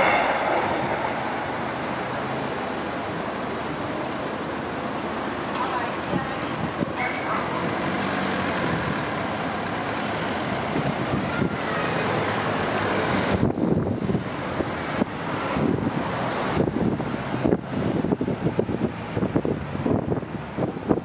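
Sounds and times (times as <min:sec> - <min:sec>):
wind on microphone: 0:00.0 - 0:03.3, 0:13.2 - 0:21.0
car engines and tyres: 0:00.0 - 0:21.0.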